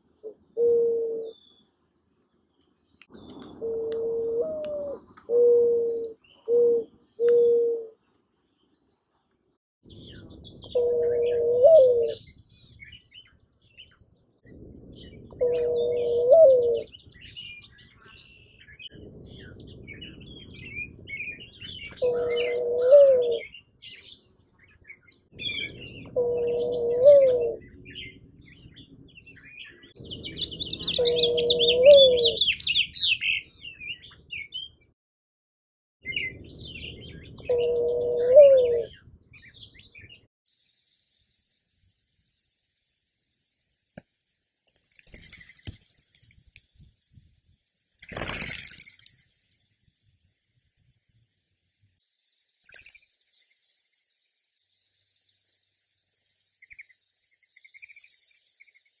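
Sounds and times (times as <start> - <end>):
small songbirds chirping faintly: 0.0 - 35.0, 36.0 - 59.0
dove cooing: 0.2 - 1.4, 3.2 - 8.0, 10.6 - 12.3, 15.3 - 16.9, 21.6 - 23.6, 25.4 - 28.1, 30.6 - 32.8, 37.4 - 39.0.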